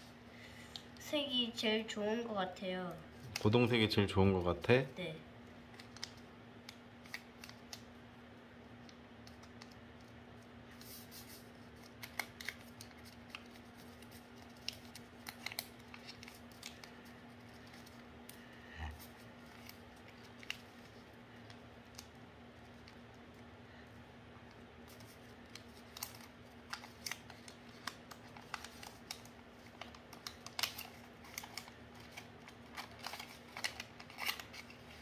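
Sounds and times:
faint steady hum: 0.0 - 35.0
paper crinkling and rustling: 10.7 - 23.4, 24.8 - 35.0.

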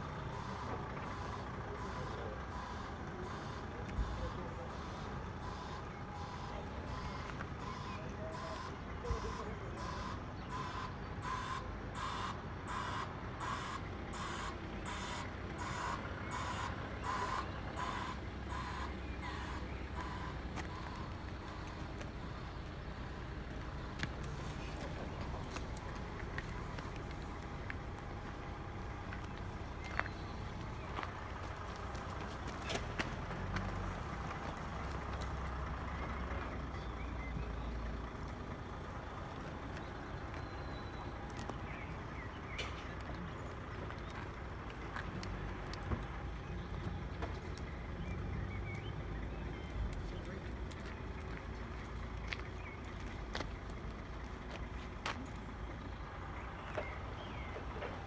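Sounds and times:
reversing alarm bleeping: 0.0 - 23.9
low engine rumble: 0.0 - 58.0.

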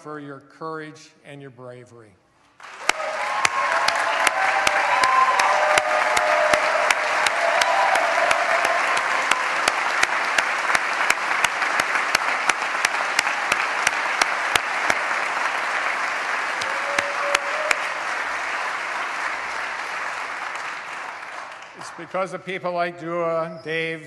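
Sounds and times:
hands clapping close by: 2.6 - 22.1
crowd applauding: 2.6 - 22.6
voices cheering: 2.8 - 21.9.

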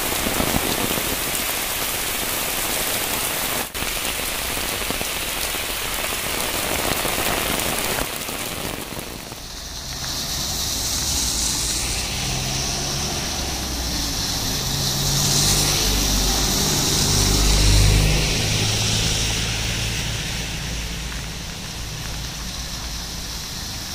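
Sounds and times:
rain on a wet road: 0.0 - 23.9
rain on an umbrella: 0.0 - 23.9
vehicles passing through spray: 0.0 - 23.9
low engine hum: 9.3 - 23.8.

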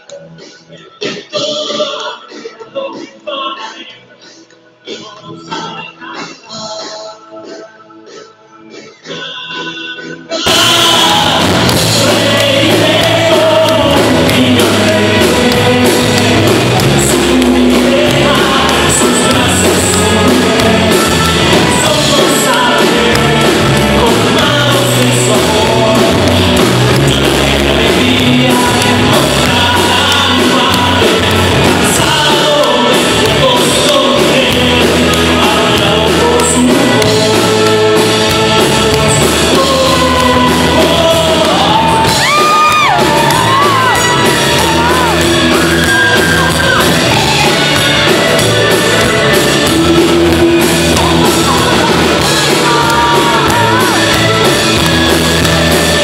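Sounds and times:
live rock band playing: 0.0 - 56.0
man singing: 0.0 - 56.0.

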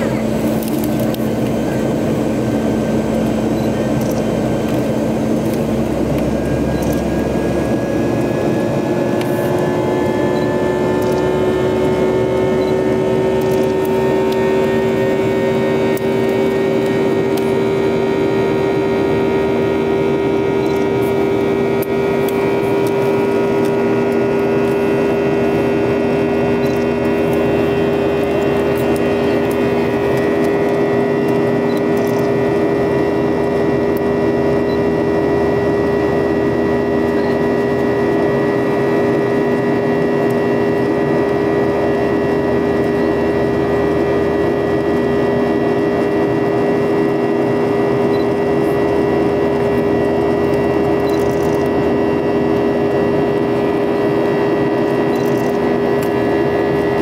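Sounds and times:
jet engine and airflow roar: 0.0 - 57.0
multi-tone hum rising in pitch: 0.0 - 57.0.

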